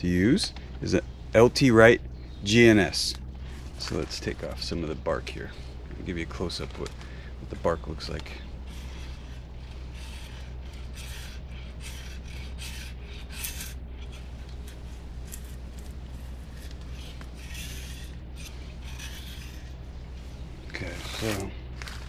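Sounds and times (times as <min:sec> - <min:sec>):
knife scraping bark: 0:07.8 - 0:20.2, 0:20.8 - 0:22.0.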